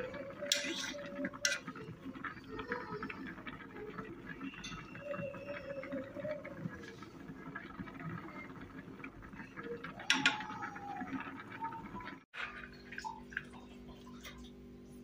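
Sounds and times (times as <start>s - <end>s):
fork scraping rice in pot: 0.4s - 1.9s.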